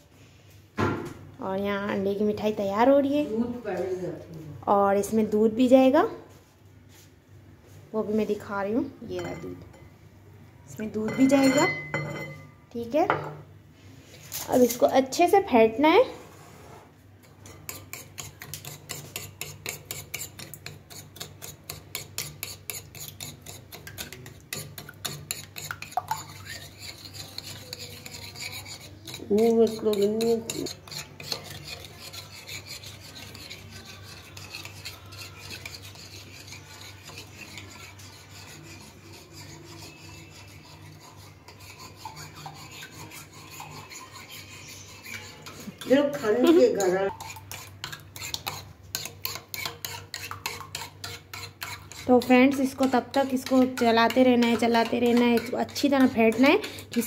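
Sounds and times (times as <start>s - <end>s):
whisk scraping glass bowl: 9.1s - 9.9s, 10.8s - 12.5s, 17.2s - 57.0s.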